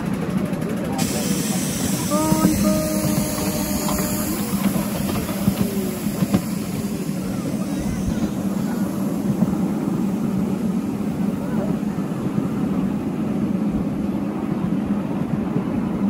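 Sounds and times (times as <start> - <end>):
miniature train rumbling on track: 0.0 - 16.0.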